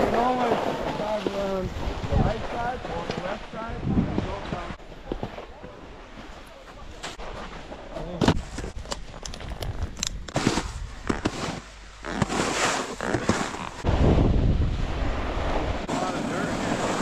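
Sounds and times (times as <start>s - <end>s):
snowboard sliding over snow: 0.0s - 6.3s, 10.3s - 17.0s
wind on microphone: 1.5s - 4.8s, 13.8s - 16.5s
boots crunching on snow: 10.3s - 13.8s.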